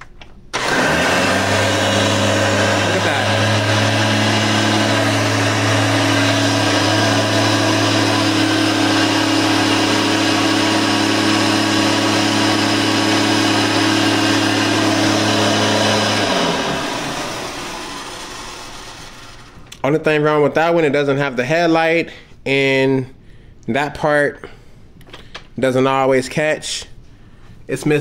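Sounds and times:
upright vacuum cleaner running: 0.6 - 19.8
vacuum motor winding down: 0.6 - 19.8.

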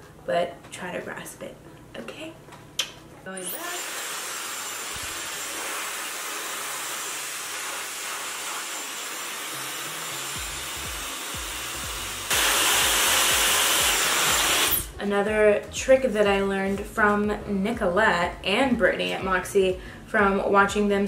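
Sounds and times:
hair dryer blowing: 3.4 - 14.9.

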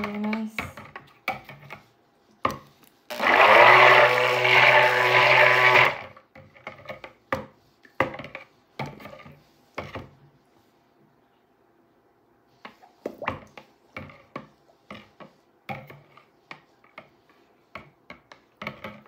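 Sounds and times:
stick blender running in bowl: 3.1 - 6.1.

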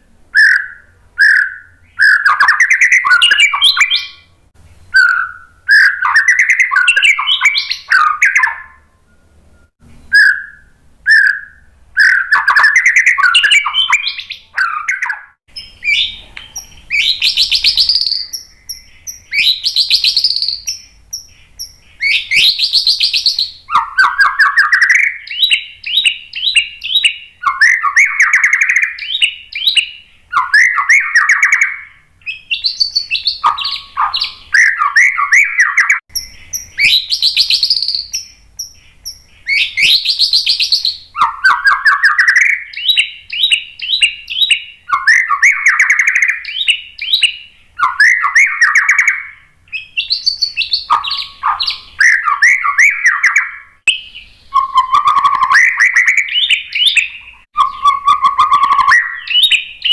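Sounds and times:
songbird singing whistles and trills: 0.0 - 59.9.

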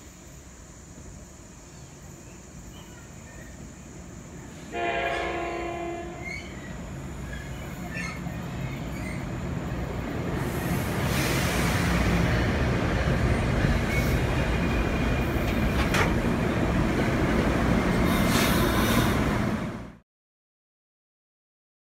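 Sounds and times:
commuter train passing: 0.0 - 20.0
train clank: 13.3 - 16.4.

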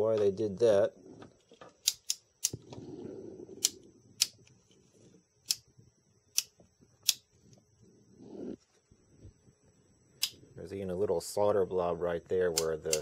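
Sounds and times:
light sharp clicks: 12.5 - 13.0.

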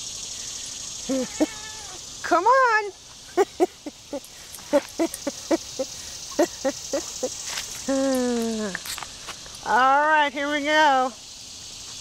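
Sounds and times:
cat meowing: 1.1 - 2.0.

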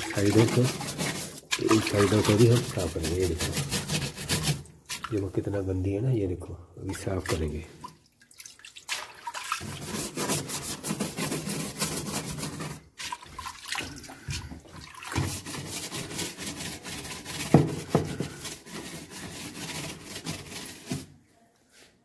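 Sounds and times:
sponge scrubbing plastic rim: 0.0 - 5.8, 8.8 - 21.1
water sloshing in tub: 0.0 - 5.8, 6.8 - 10.5, 12.4 - 16.2.

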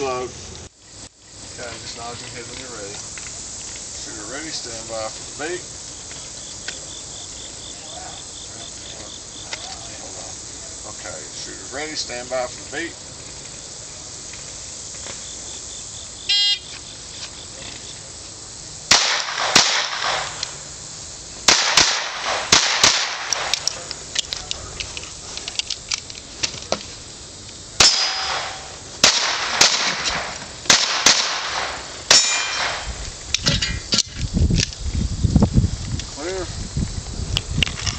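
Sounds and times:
shot timer beep: 16.3 - 16.6
pistol shots: 18.9 - 20.5, 21.5 - 23.8, 27.8 - 32.9
steel plates clanging: 32.1 - 32.8, 33.4 - 34.1.

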